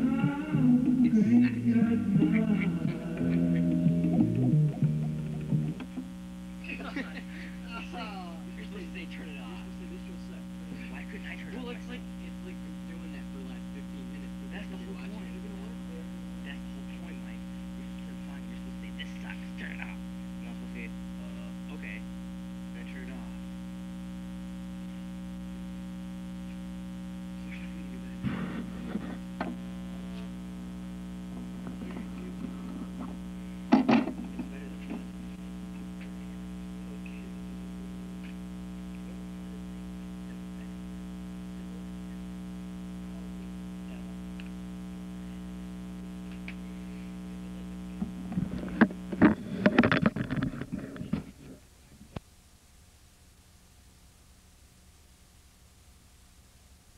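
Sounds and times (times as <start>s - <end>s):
crackling bursts: 0.0s - 52.3s
electrical hum: 0.0s - 56.9s.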